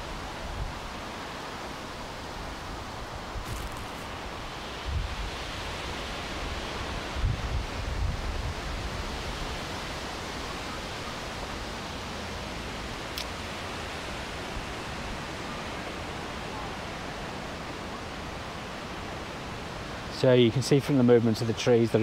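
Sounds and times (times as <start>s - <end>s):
wind rushing through trees: 0.0s - 22.0s
wind buffeting microphone: 3.1s - 9.8s.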